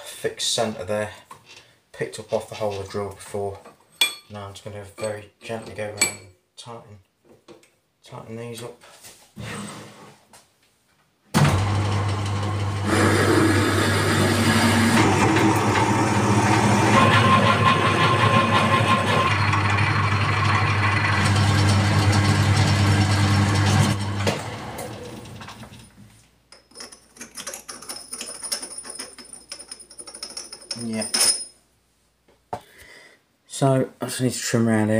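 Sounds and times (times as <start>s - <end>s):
metal lathe running: 12.8s - 25.2s.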